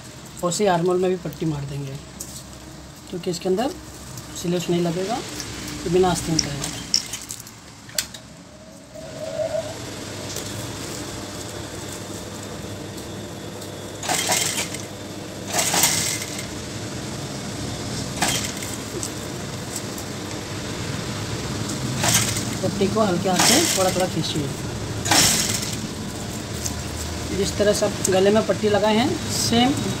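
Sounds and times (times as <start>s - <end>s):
sewing machine running: 14.0s - 16.5s, 18.2s - 18.8s, 22.0s - 24.3s, 25.0s - 25.9s.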